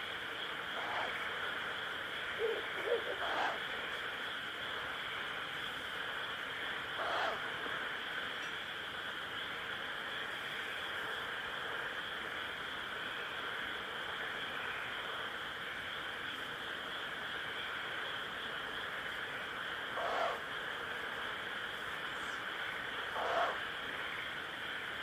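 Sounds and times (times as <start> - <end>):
insect chorus: 0.0 - 25.0
owl chick call: 2.4 - 3.6, 7.0 - 7.4, 20.0 - 20.4, 23.2 - 23.6.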